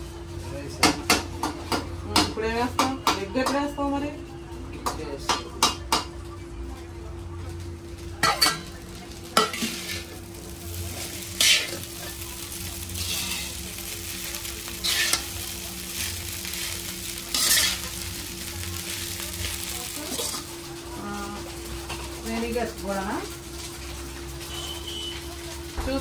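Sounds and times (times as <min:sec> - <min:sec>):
rice sizzling in pan: 0:00.0 - 0:26.0
metal spatula scraping pan: 0:09.4 - 0:10.1, 0:10.9 - 0:12.2, 0:12.9 - 0:13.6, 0:14.7 - 0:15.3, 0:16.0 - 0:18.0.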